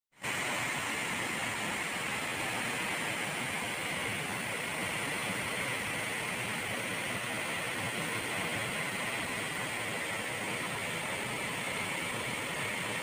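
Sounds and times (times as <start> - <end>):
waterfall rushing: 0.2 - 13.0.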